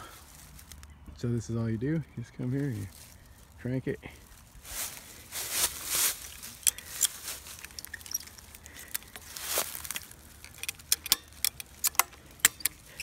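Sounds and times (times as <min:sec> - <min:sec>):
ratchet strap clicking: 0:06.5 - 0:13.0.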